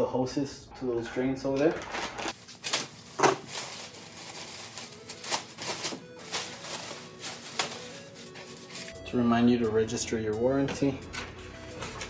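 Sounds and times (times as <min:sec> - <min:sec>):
sharp plastic crackles: 0:01.8 - 0:08.9
plastic wrap crinkling: 0:01.8 - 0:09.0.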